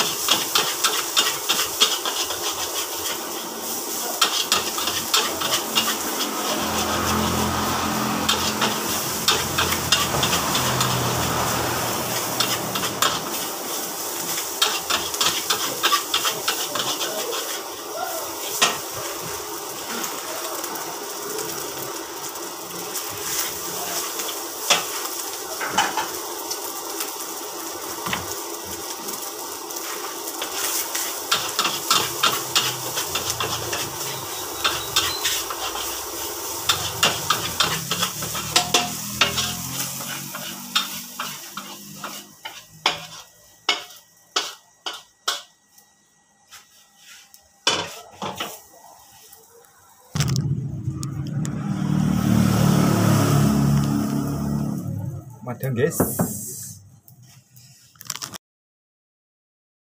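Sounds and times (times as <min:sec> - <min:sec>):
metal spatula scraping a wok: 0:00.0 - 0:18.8, 0:30.4 - 0:45.5
rice sizzling: 0:00.0 - 0:58.4.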